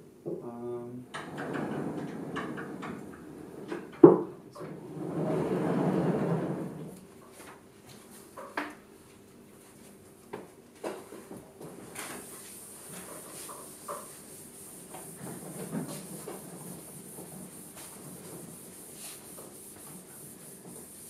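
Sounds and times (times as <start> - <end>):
panel rumbling along track: 1.1 - 4.0, 4.7 - 7.0.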